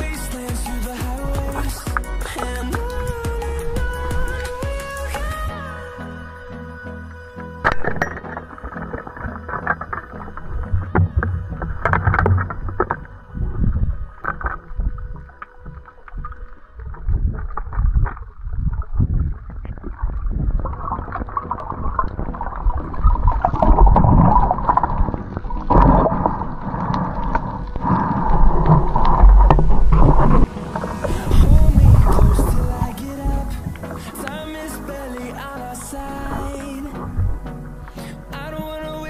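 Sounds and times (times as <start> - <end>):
rush of moving water: 7.6 - 39.0
underwater knocks and clicks: 7.7 - 13.2, 14.2 - 34.5.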